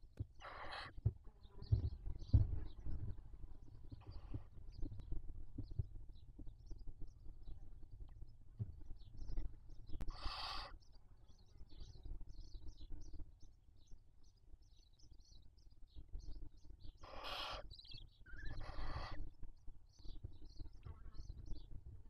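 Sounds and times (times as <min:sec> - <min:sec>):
owl chicks hissing calls: 0:00.4 - 0:01.0, 0:10.1 - 0:10.9, 0:17.0 - 0:19.3.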